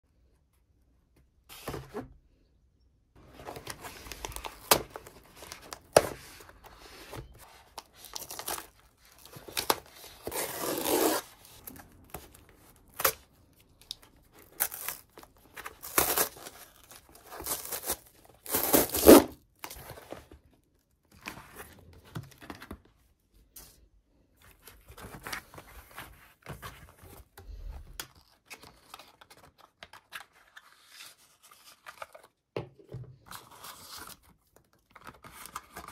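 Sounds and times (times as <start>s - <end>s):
cardboard rustling and handling: 3.2s - 23.8s, 24.4s - 35.9s
tape and cardboard ripping: 9.5s - 11.4s, 15.8s - 19.4s.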